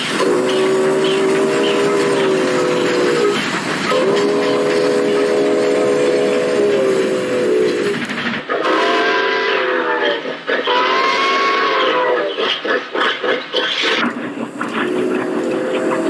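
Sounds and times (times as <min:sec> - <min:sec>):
steam locomotive whistle: 0:00.0 - 0:12.4.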